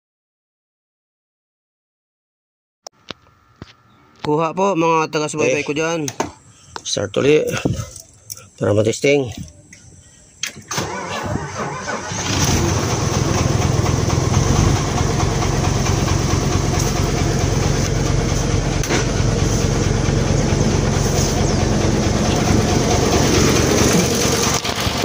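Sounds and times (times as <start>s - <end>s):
diesel engine starting and idling: 10.3s - 25.0s.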